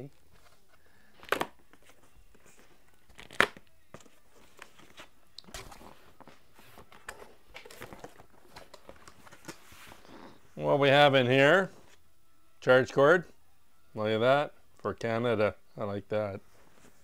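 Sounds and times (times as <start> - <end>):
packing material handled: 0.3 - 10.2.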